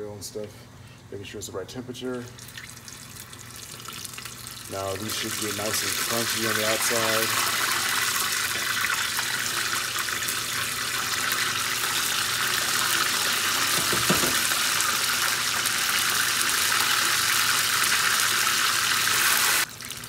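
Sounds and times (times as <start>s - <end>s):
chicken deep-frying in oil: 2.4s - 20.0s
knock: 13.7s - 14.4s.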